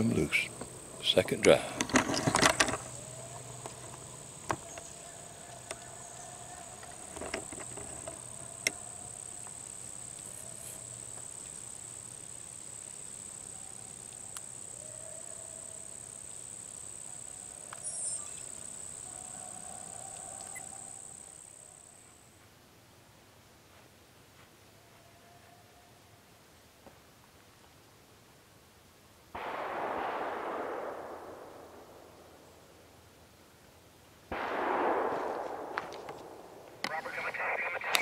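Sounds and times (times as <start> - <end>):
high-pitched insect trill: 2.1 - 22.2
faint clicks: 20.0 - 20.7, 35.8 - 38.0.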